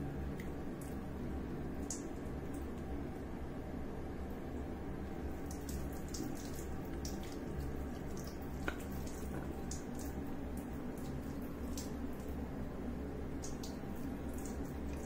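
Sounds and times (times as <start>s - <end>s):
water trickling: 0.1s - 3.0s, 4.3s - 15.0s
water drips and splashes: 0.3s - 1.1s, 1.7s - 2.9s, 5.0s - 15.0s.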